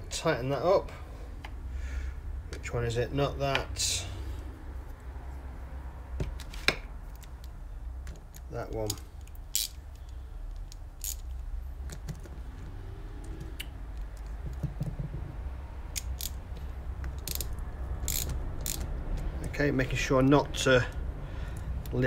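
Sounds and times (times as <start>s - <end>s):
spanner clicking on a nut: 8.3s - 12.3s, 15.9s - 16.4s, 17.0s - 19.3s.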